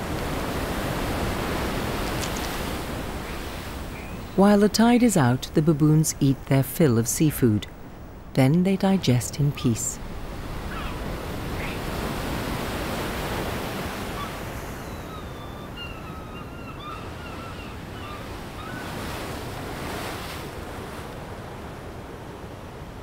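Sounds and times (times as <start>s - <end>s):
ocean waves against rocks: 0.0s - 15.3s, 16.8s - 23.0s
faint high chirping calls: 10.6s - 11.9s, 14.1s - 19.0s.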